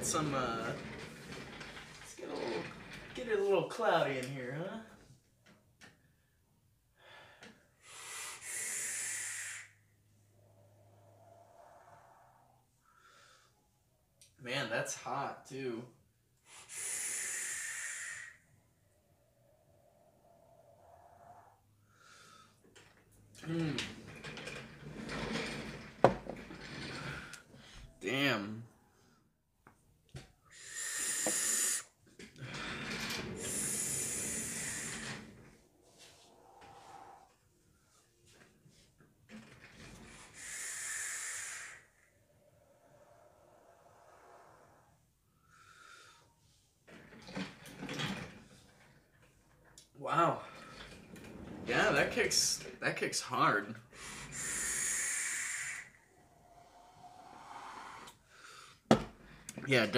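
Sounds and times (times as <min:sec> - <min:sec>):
breathy exhale: 0:07.0 - 0:13.8, 0:16.4 - 0:18.6, 0:19.5 - 0:22.6, 0:30.5 - 0:38.2, 0:39.9 - 0:46.6, 0:53.9 - 0:59.5
hissing air draws through atomizer: 0:07.8 - 0:12.8, 0:16.4 - 0:22.6, 0:30.5 - 0:32.0, 0:32.8 - 0:38.1, 0:39.8 - 0:46.6, 0:53.9 - 0:59.0
hissing draw on vape: 0:16.5 - 0:18.4, 0:30.6 - 0:31.9, 0:33.4 - 0:35.0, 0:40.3 - 0:42.0, 0:54.3 - 0:56.0.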